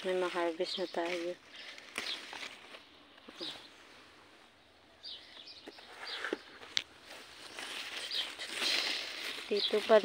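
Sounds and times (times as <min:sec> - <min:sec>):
hand rustling through leaves: 0:00.0 - 0:04.3, 0:05.8 - 0:10.0
faint bird chirps: 0:03.2 - 0:10.0.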